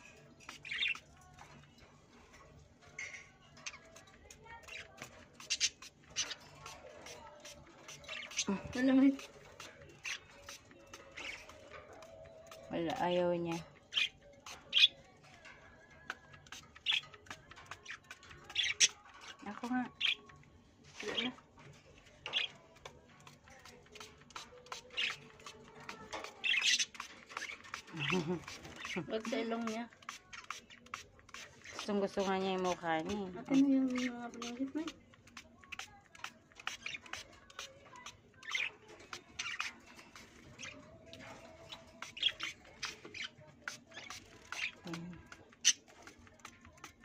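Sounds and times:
faint background music: 0.0s - 47.0s
parakeets squeaking and squawking: 0.0s - 47.0s.

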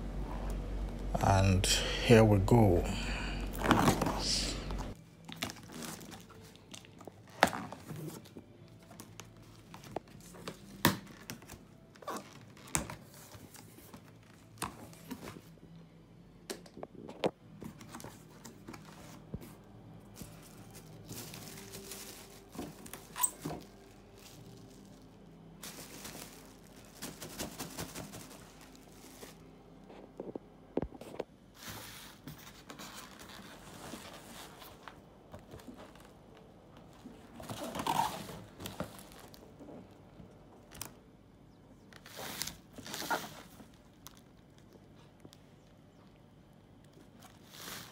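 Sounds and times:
plastic wrap rustling: 3.5s - 15.6s, 17.8s - 30.1s, 31.6s - 40.0s, 42.0s - 45.0s.

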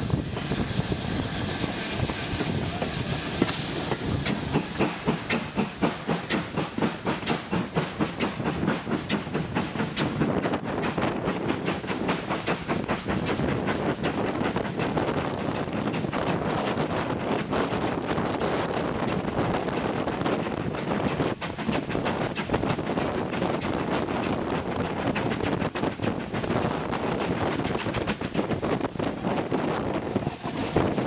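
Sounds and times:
steady steam hiss: 0.0s - 31.0s
steam locomotive exhaust beating: 0.0s - 31.0s
wind rushing past window: 9.4s - 31.0s.

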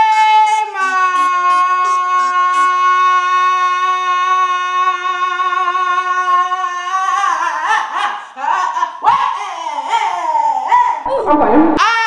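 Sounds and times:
short sliding vocal sounds: 11.1s - 11.8s.

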